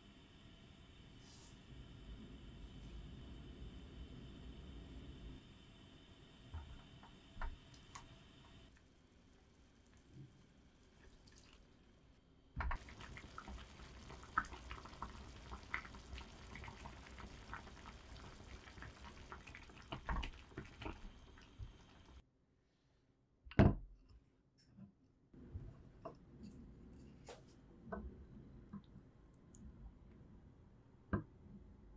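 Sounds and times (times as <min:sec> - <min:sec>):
broth bubbling and popping: 0:08.7 - 0:11.8, 0:12.6 - 0:22.2.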